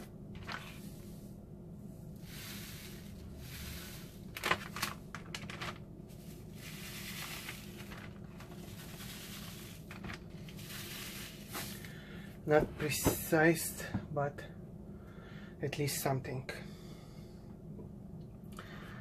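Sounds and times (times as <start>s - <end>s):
salt pouring hiss: 2.2s - 4.3s, 6.5s - 7.9s, 8.6s - 11.9s
plastic bags crinkling: 4.0s - 12.0s.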